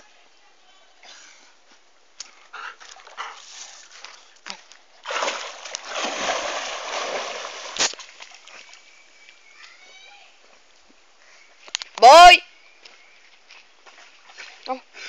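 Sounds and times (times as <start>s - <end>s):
sharp water smack: 5.0s - 8.4s
dog splashing in water: 5.0s - 8.7s.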